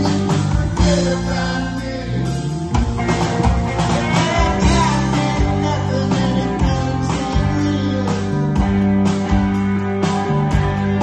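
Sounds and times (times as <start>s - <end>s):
male lead vocal: 0.0s - 2.9s, 3.8s - 8.9s
live rock band playing: 0.0s - 11.0s.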